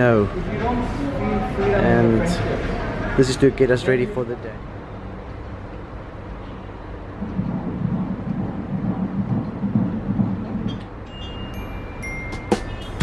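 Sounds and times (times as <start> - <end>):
doppler heartbeat whooshing: 7.2 - 10.8.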